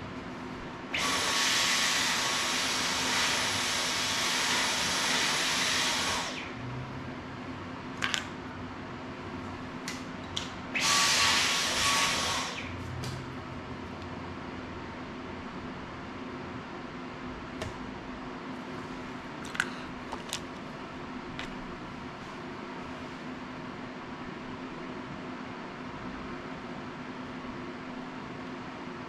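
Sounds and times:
stick vacuum running: 0.9s - 6.8s, 10.7s - 13.2s.

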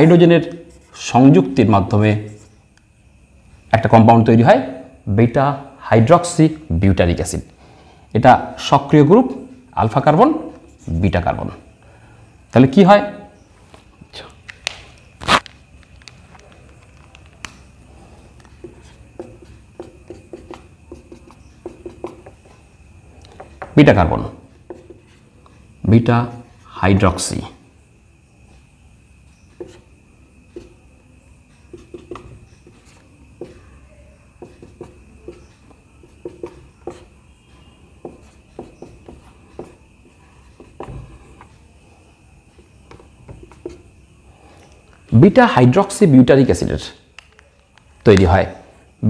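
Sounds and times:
marker pen writing on whiteboard: 0.0s - 1.6s, 16.4s - 27.2s, 28.4s - 45.1s.

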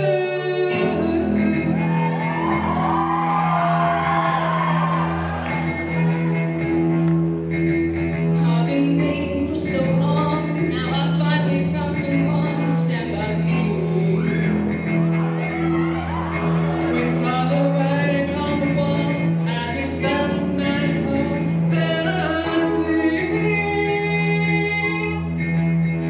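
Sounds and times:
singers singing pop duet: 0.0s - 2.2s, 16.9s - 25.2s.

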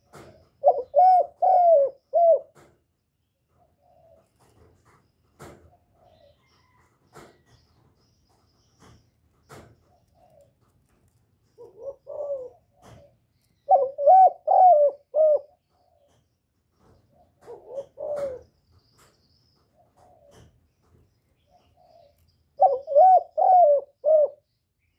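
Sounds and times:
dove cooing: 0.0s - 2.7s, 3.6s - 4.6s, 9.5s - 10.6s, 11.5s - 16.1s, 17.0s - 18.6s, 19.7s - 20.6s, 21.4s - 24.5s.

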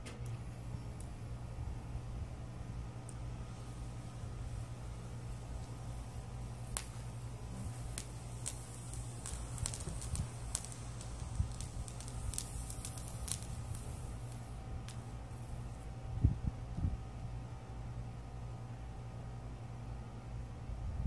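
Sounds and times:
steady low hum: 0.0s - 21.0s
firework crackles and pops: 3.0s - 15.9s.

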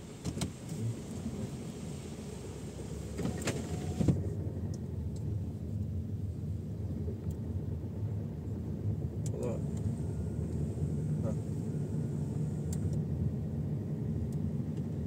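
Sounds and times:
road hiss: 0.0s - 4.3s
car engine and road rumble: 0.0s - 15.0s.

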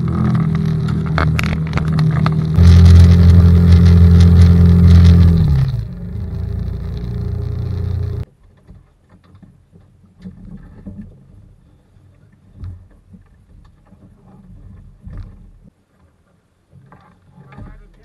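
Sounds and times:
outboard motor running: 0.0s - 8.2s
knocks and bumps on a boat deck: 16.7s - 18.0s.

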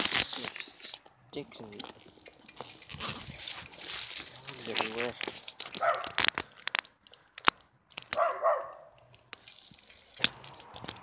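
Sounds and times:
bike clattering over sticks: 0.0s - 11.0s.

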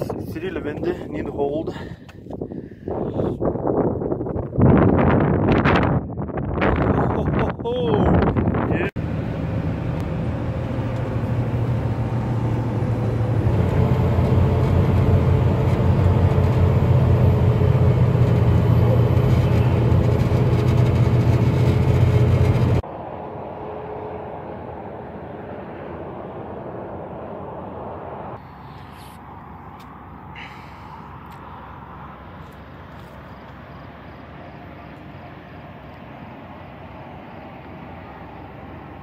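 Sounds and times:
road noise: 0.0s - 39.0s
truck engine drone: 8.4s - 39.0s.

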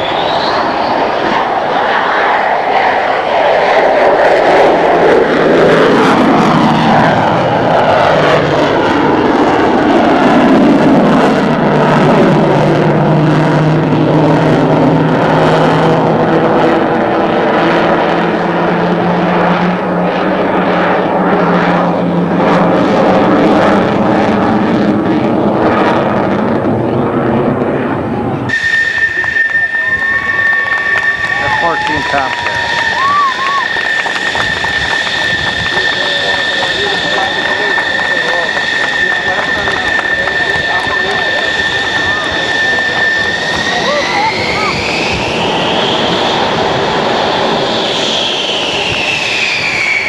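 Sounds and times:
jet engines at high power: 0.0s - 50.0s.

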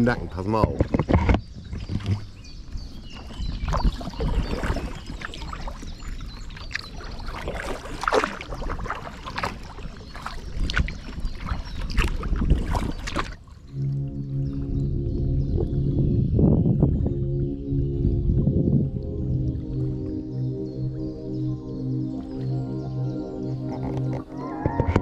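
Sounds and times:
paddle splashing in water: 0.5s - 14.6s
low rumble: 13.7s - 25.0s.

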